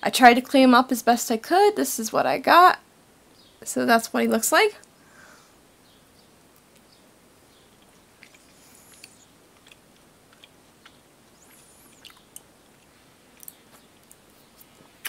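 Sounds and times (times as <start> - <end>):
faint chewing of candy: 7.6 - 15.0
small mouth clicks: 7.8 - 14.8.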